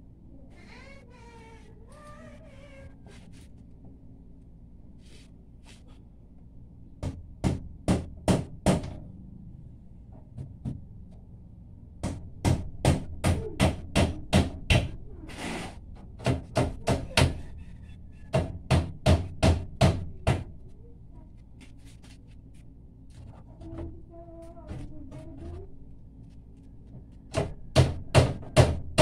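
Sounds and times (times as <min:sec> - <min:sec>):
hammer nailing plywood boards: 0:07.0 - 0:09.0, 0:12.0 - 0:17.4, 0:18.3 - 0:20.5, 0:27.3 - 0:29.0
brief scrape: 0:15.3 - 0:15.8.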